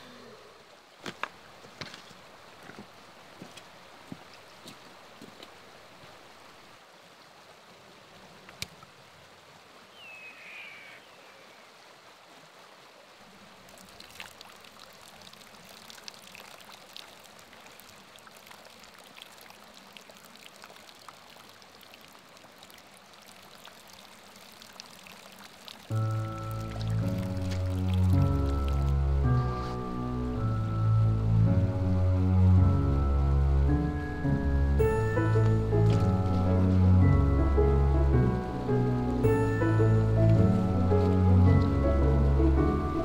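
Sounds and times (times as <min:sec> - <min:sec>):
creek water trickling: 0:00.0 - 0:43.0
small splashes: 0:12.7 - 0:28.9
music: 0:25.9 - 0:43.0.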